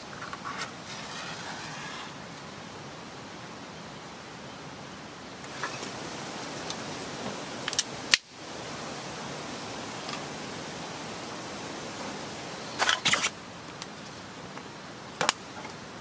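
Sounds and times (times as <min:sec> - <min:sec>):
steady outdoor hiss: 0:00.0 - 0:16.0.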